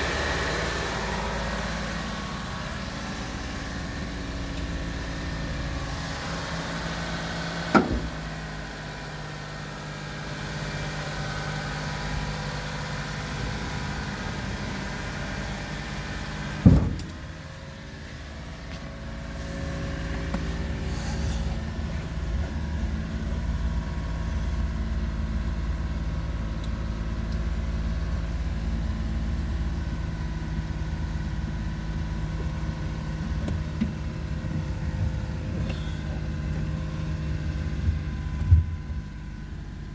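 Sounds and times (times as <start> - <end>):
small engine running: 19.2 - 39.9.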